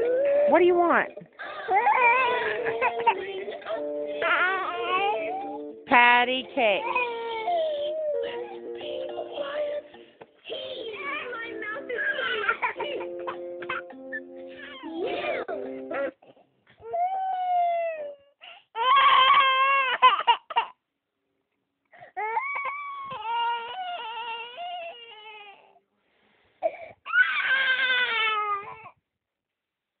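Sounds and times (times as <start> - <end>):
young child crying: 0.0 - 0.6, 1.4 - 5.6, 16.8 - 20.8.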